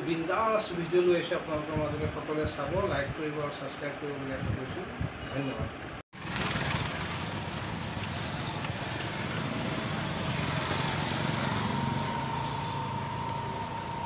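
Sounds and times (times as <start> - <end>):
motorcycle and car traffic rumble: 4.4 - 14.0.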